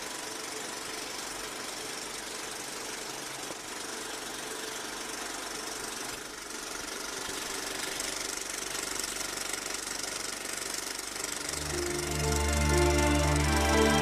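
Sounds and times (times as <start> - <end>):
film projector clattering: 0.0 - 14.0
low music notes: 11.6 - 14.0.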